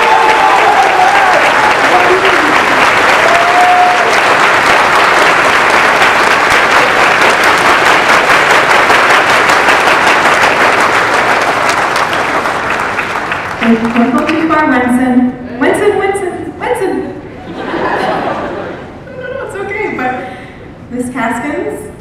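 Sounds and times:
crowd applauding: 0.0 - 14.5.

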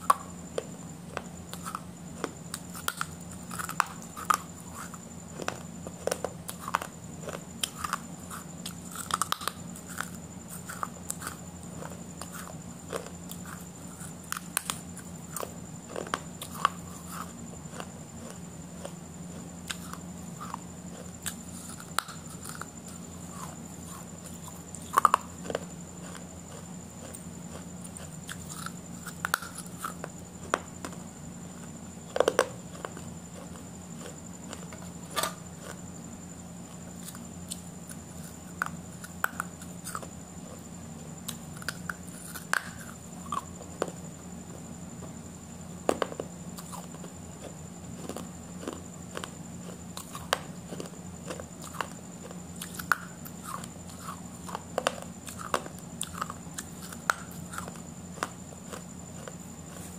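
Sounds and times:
steady low hum: 0.0 - 59.9
person chewing food: 0.1 - 31.0, 31.6 - 35.8, 36.7 - 44.0, 45.9 - 59.9
soft crunches and mouth clicks: 45.9 - 59.9.

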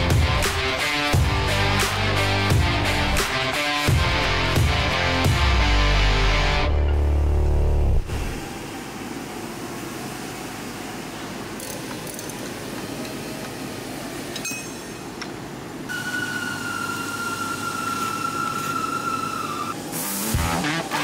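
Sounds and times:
high-pitched power tool whine: 15.9 - 21.0.

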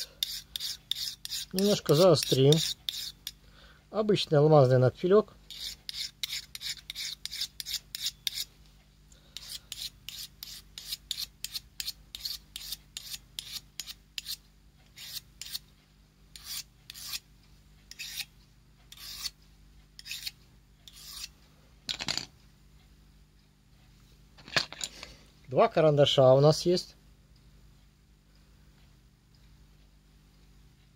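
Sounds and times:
file scraping steel: 0.0 - 3.4, 5.5 - 8.5, 9.4 - 15.6, 16.3 - 17.2, 17.9 - 18.3, 18.9 - 19.4, 20.0 - 21.4.

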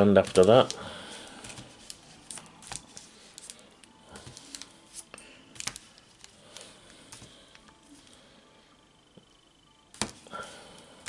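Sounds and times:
foil packets crinkling: 0.0 - 8.2.

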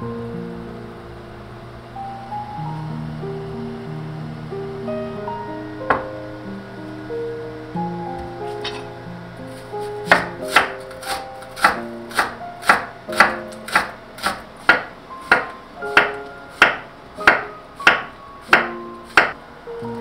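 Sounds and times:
knife chopping on cutting board: 10.1 - 19.4.

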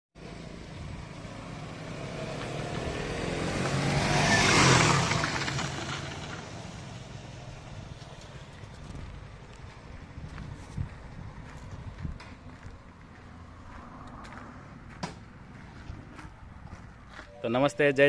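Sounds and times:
motorcycle engine passing by: 0.3 - 8.4.

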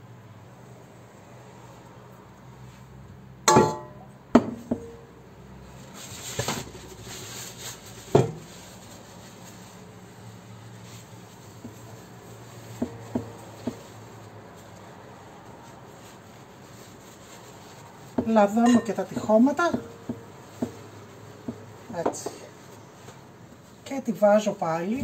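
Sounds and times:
glass bowl clinking on counter: 3.5 - 4.1, 18.6 - 19.3
kitchenware knocks and clinks: 3.5 - 5.0
short rustle: 5.7 - 18.2.

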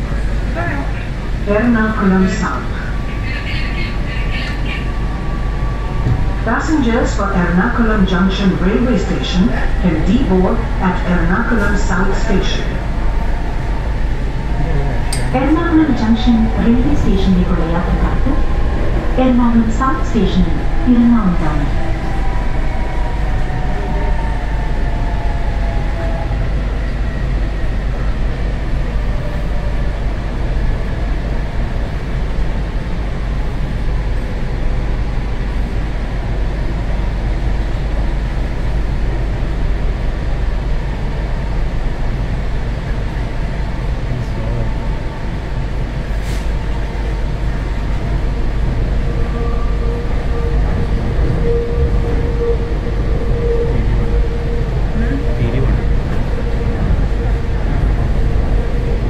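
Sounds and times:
train rumbling in motion: 0.0 - 59.0
steady whine: 47.0 - 59.0.

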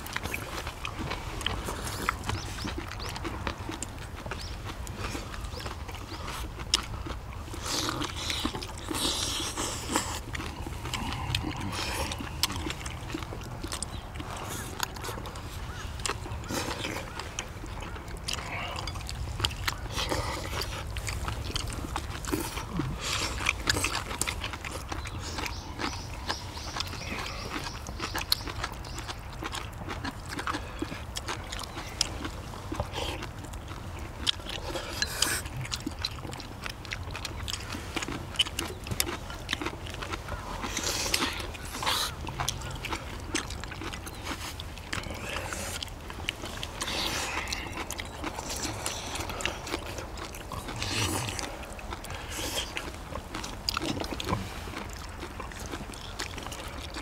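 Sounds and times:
chewing and slurping: 0.0 - 57.0.

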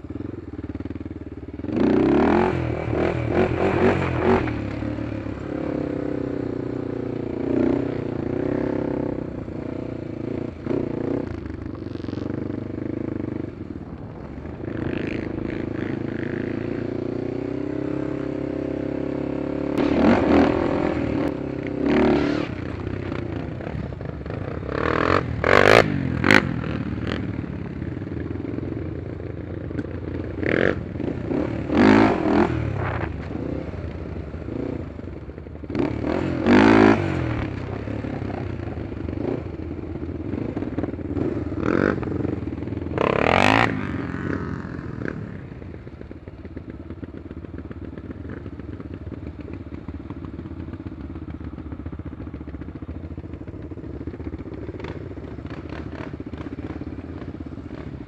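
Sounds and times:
quad engine revving: 1.7 - 27.4, 30.2 - 33.8, 35.7 - 39.6, 40.2 - 45.6.

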